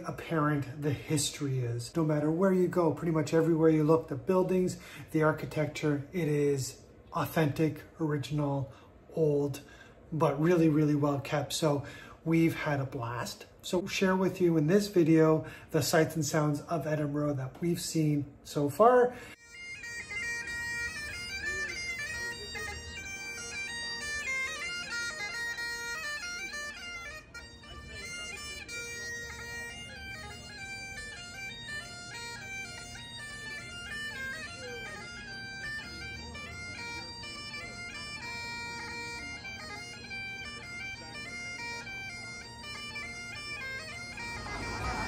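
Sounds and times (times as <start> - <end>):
bagpipe melody with drones: 19.2 - 45.0.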